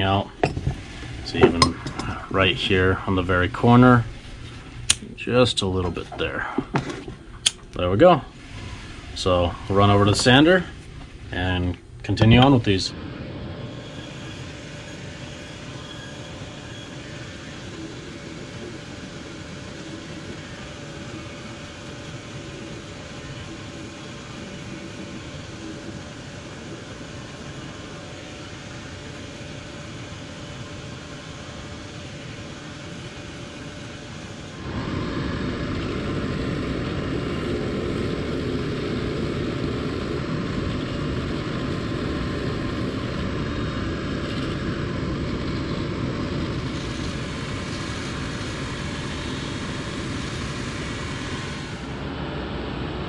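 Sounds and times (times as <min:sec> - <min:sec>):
sanding machine running: 0:12.2 - 0:52.0.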